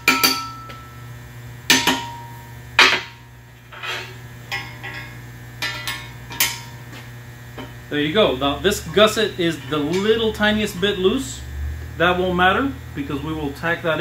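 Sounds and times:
hammer striking metal: 0.0s - 1.0s, 1.7s - 3.3s, 4.5s - 6.8s.

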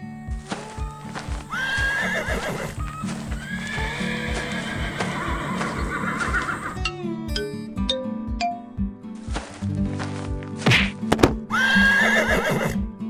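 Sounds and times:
background music with steady beat: 0.0s - 13.0s
horses neighing: 0.7s - 6.8s, 11.5s - 12.8s.

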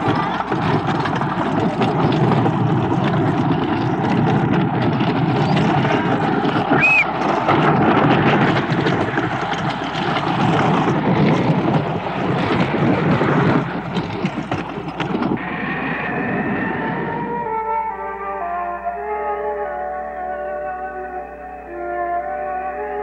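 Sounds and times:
roller coaster rumbling and clacking: 0.0s - 18.6s
eerie sustained music tones: 15.4s - 23.0s.

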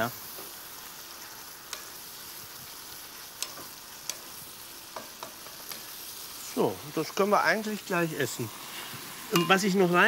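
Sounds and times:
vegetables sizzling in a wok: 0.0s - 10.0s
spatula clicking against pan: 3.4s - 4.2s.

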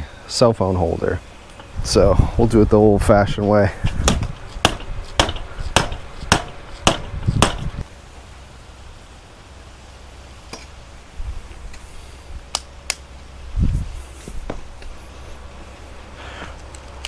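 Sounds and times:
mallet striking metal fitting: 4.0s - 7.7s.

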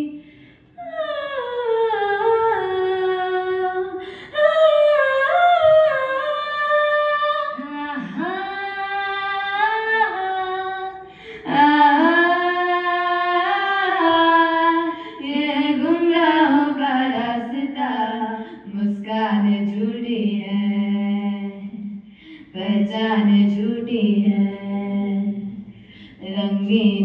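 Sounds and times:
singer breathing: 0.1s - 0.8s, 4.0s - 4.4s, 11.0s - 11.5s, 22.0s - 22.6s, 25.6s - 26.2s
woman singing into microphone: 0.8s - 27.0s.

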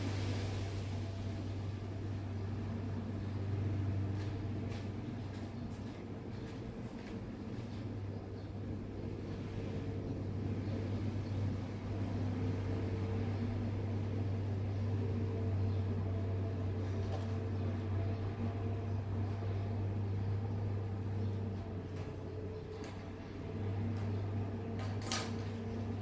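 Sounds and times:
machine humming with hiss: 0.0s - 5.4s.

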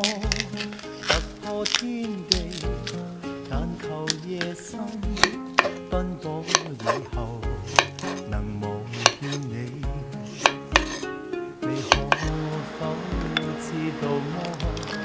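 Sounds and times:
knife chopping on wooden board: 5.1s - 7.1s, 7.7s - 8.2s, 9.0s - 9.3s, 10.4s - 11.0s, 11.8s - 12.4s.

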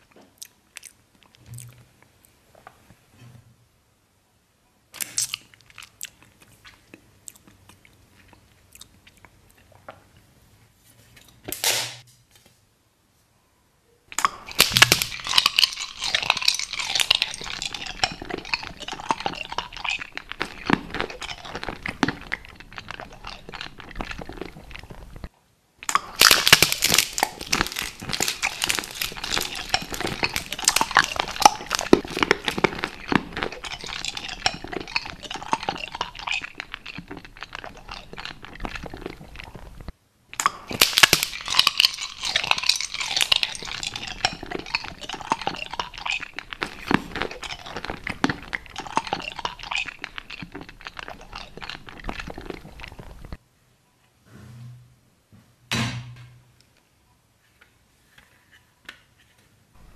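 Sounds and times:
plastic packaging crinkling: 14.2s - 25.2s, 25.9s - 53.3s.

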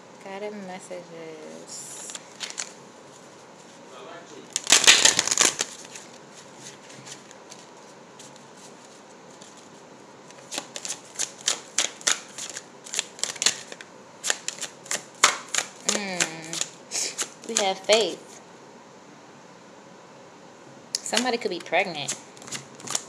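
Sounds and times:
cards being shuffled: 1.9s - 2.8s, 4.5s - 18.4s, 21.0s - 23.0s.

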